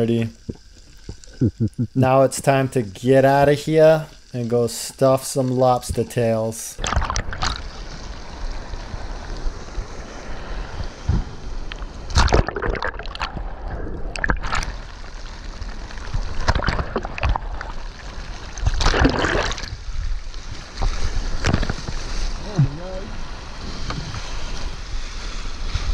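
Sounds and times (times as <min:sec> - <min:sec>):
seawater sloshing and splashing: 0:06.8 - 0:11.1, 0:11.9 - 0:22.5
loud water splashes: 0:12.1 - 0:14.9, 0:16.1 - 0:19.8.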